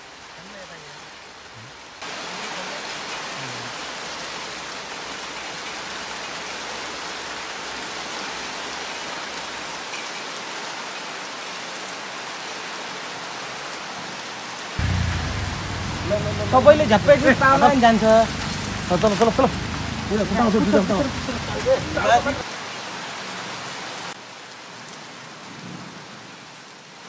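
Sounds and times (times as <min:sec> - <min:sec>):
rain pattering on ground: 0:00.0 - 0:27.0
low rumble: 0:14.8 - 0:22.4.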